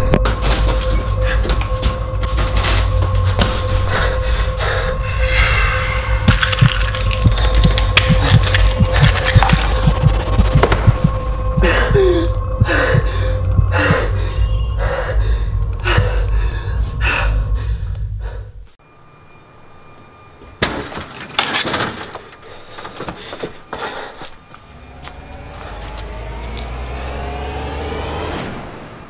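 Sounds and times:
low droning tones: 0.0s - 20.6s
sharp noises: 5.2s - 14.2s.

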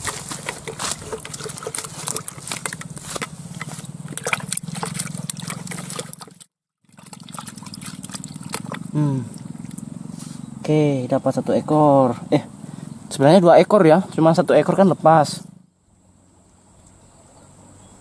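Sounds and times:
handling clicks and knocks: 0.0s - 6.4s
water splashing in a bucket: 0.0s - 10.0s.

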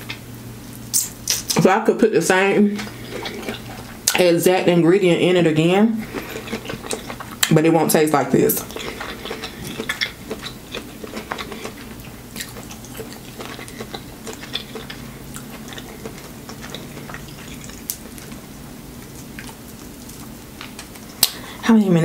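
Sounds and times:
chewing corn on the cob: 2.9s - 4.0s, 6.0s - 7.5s, 8.5s - 21.4s.

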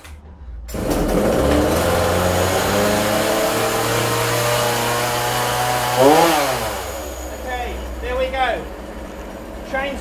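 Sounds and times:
chainsaw engine running: 0.8s - 8.0s.

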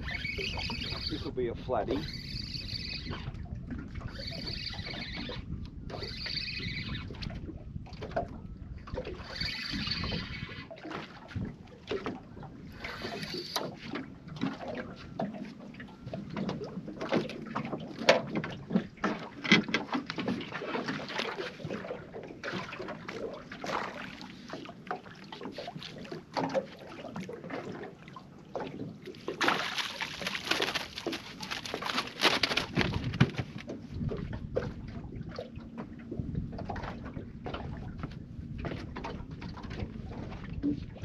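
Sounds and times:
water lapping at hull: 0.0s - 41.0s
footsteps in boat: 10.7s - 41.0s
fish splashing: 28.6s - 33.6s
gear knocking in boat: 28.7s - 34.9s.

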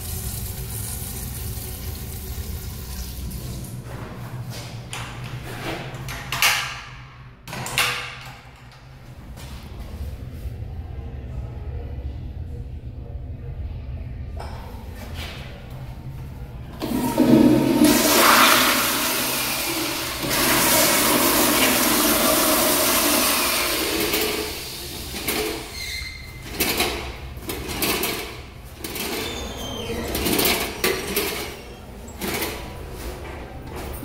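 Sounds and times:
toilet flushing: 0.0s - 4.1s, 16.8s - 32.8s.

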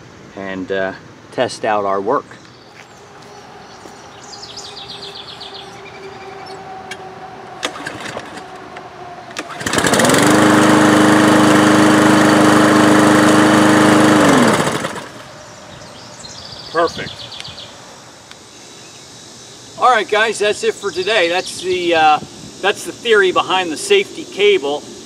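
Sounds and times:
engine winding down: 3.0s - 15.6s
lawn mower engine running: 6.6s - 15.4s.

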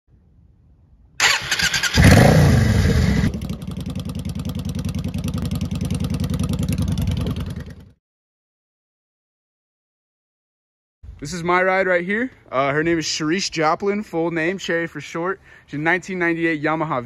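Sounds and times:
motorcycle starter cranking: 1.2s - 2.3s
engine revving: 1.2s - 7.9s
motorcycle engine idling: 2.7s - 7.9s.

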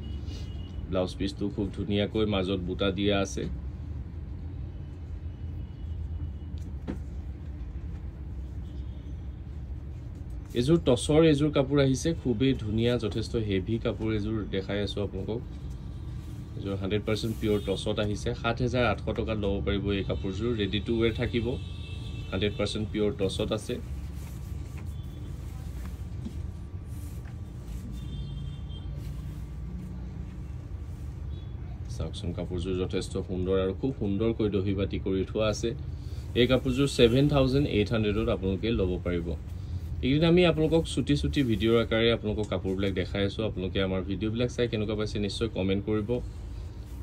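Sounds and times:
soft fabric rustles: 6.6s - 19.4s, 20.9s - 32.4s, 35.4s - 47.0s.

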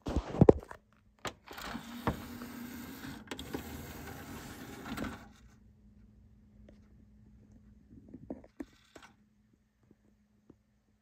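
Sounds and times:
dvd tray motor whirring: 1.5s - 5.4s.

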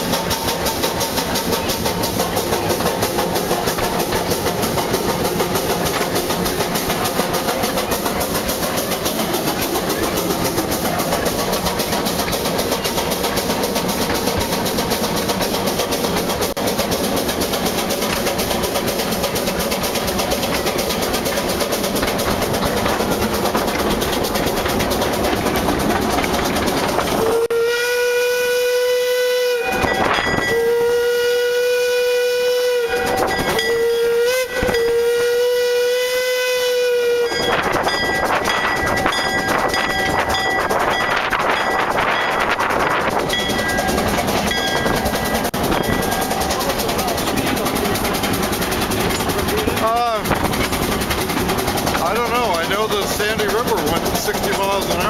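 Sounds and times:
train rattling along track: 0.0s - 55.0s
steam whistle blasts: 27.2s - 37.6s.

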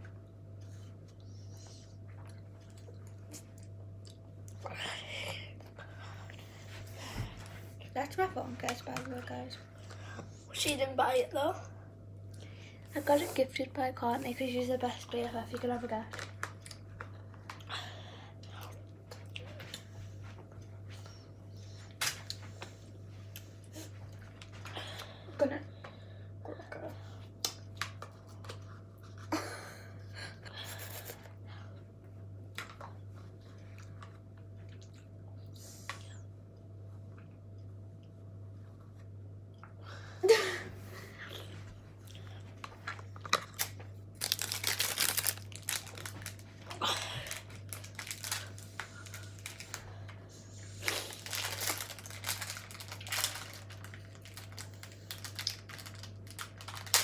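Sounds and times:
steady low hum: 0.0s - 57.0s
plastic packaging crinkling: 42.9s - 50.0s, 50.8s - 57.0s.

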